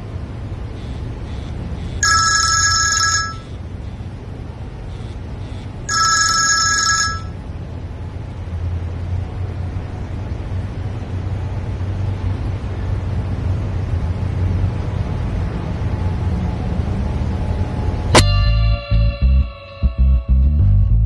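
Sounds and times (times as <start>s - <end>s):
telephone ringing: 0.8s - 4.0s, 4.9s - 7.4s.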